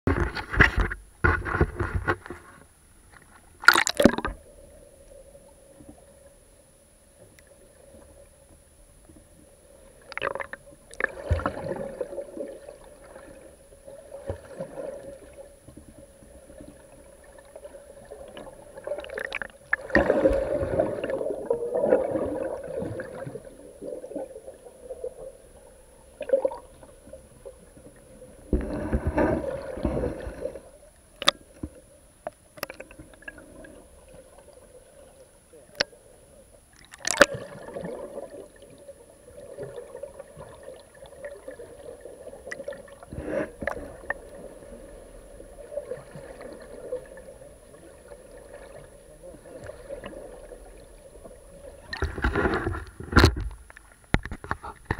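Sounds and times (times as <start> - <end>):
faint steady hum: 0.1 - 54.9
knocks and splashes: 3.6 - 4.4, 36.9 - 37.6, 51.9 - 54.9
underwater rushing and gurgling: 3.6 - 54.9.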